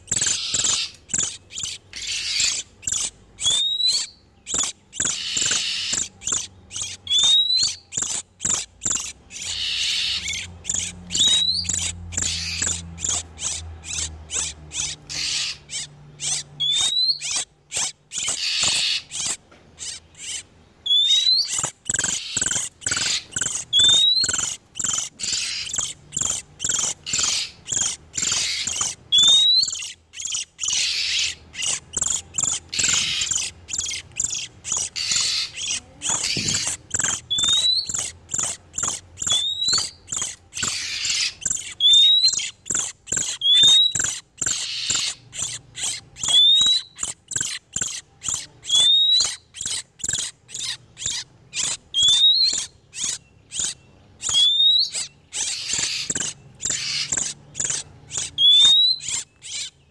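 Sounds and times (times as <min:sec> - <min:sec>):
birds ticking chatter: 0:00.0 - 0:59.9.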